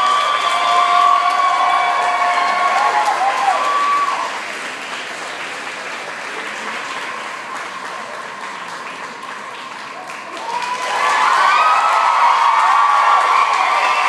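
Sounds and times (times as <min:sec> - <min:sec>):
audience cheering and whoops: 0:00.0 - 0:04.4, 0:10.3 - 0:14.0
audience applauding: 0:00.0 - 0:14.0.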